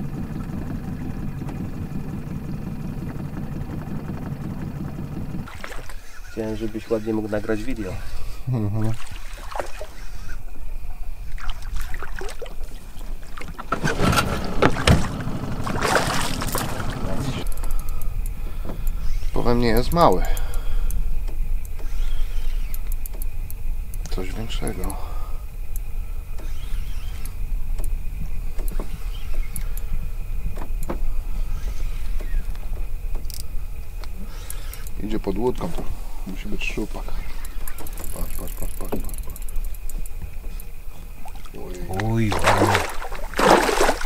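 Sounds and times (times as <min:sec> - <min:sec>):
boat engine drone: 0:00.0 - 0:44.0
water splashing: 0:05.4 - 0:06.3, 0:08.8 - 0:10.3, 0:11.3 - 0:17.4, 0:41.1 - 0:44.0
knocks on boat: 0:14.1 - 0:17.2.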